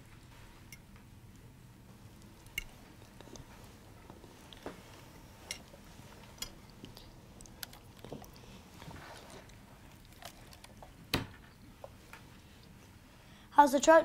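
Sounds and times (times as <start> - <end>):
faint room hum: 0.0 - 14.0.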